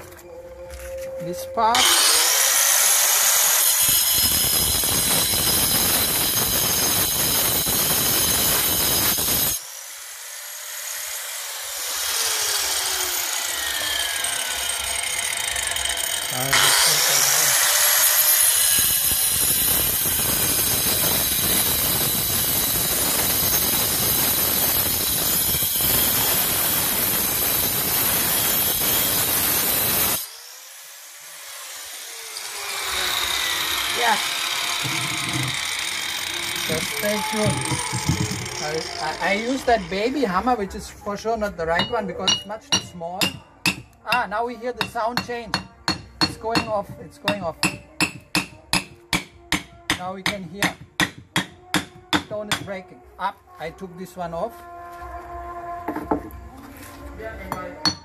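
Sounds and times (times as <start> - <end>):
angle grinder cutting stone: 1.2 - 40.4, 41.8 - 48.9.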